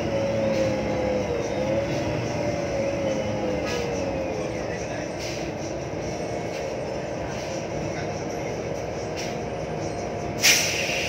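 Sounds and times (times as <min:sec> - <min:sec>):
bus running drone: 0:00.0 - 0:11.0.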